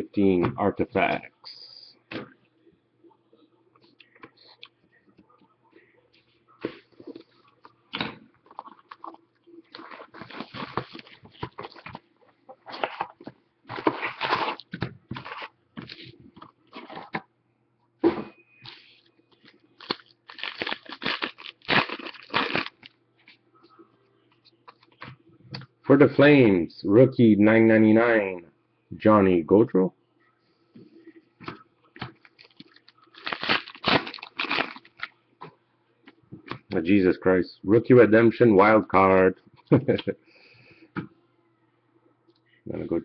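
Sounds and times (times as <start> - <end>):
packaging crinkling and tearing: 8.5 - 12.0, 12.6 - 16.1, 19.8 - 22.9, 32.2 - 35.1.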